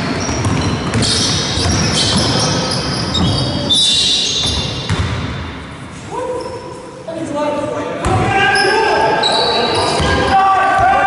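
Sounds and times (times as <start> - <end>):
basketball bouncing: 0.0 - 2.4, 4.4 - 5.5
shoes squeaking on wooden floor: 0.0 - 5.0.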